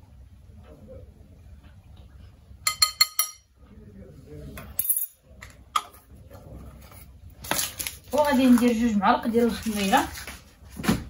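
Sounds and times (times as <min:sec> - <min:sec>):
spoon clinking on glass bowl: 0:02.6 - 0:03.5.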